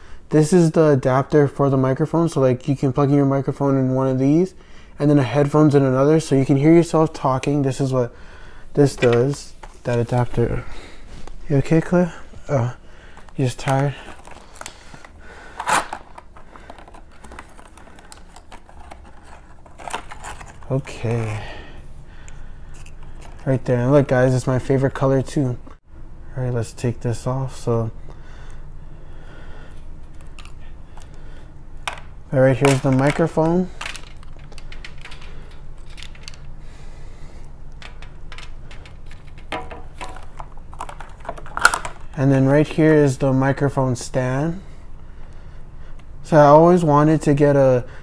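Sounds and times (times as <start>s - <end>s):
cable being handled: 8.8s - 12.4s, 13.1s - 21.4s, 22.3s - 23.6s, 30.0s - 31.2s, 31.8s - 36.6s, 37.7s - 42.2s
plastic packaging crackling: 13.1s - 21.3s, 37.8s - 42.2s
cable dropped on table: 39.5s - 40.2s.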